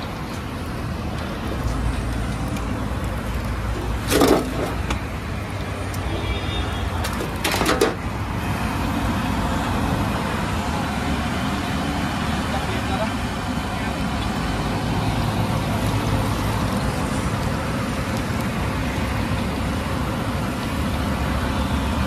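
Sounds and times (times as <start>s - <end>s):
deep-frying in hot oil: 0.0s - 22.0s
road traffic: 0.0s - 22.0s
metal ladle clattering: 3.8s - 5.0s.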